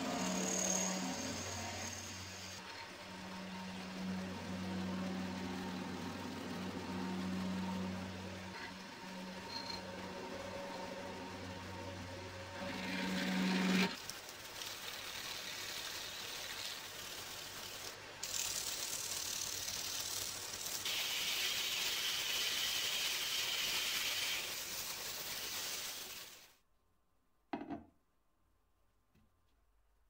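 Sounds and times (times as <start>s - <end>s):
steady hiss: 13.9s - 26.6s.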